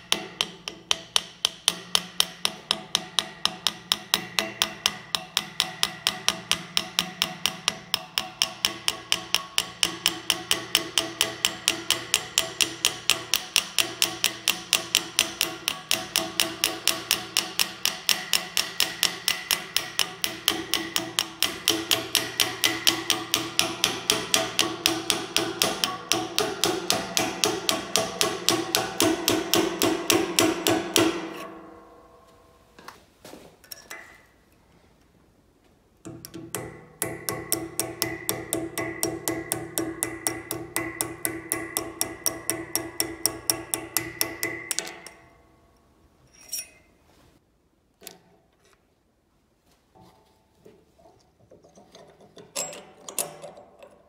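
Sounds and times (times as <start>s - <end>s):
hammer tapping on steel punch: 0.0s - 32.1s, 36.0s - 45.4s.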